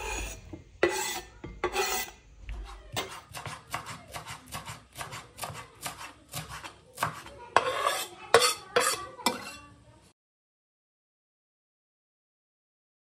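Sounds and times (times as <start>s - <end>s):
knife scraping across board: 0.0s - 9.7s
knife chopping on cutting board: 0.2s - 9.5s.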